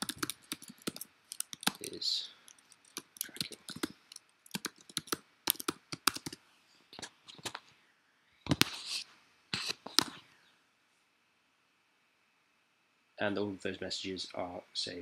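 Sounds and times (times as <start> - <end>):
computer keyboard typing: 0.0 - 6.4.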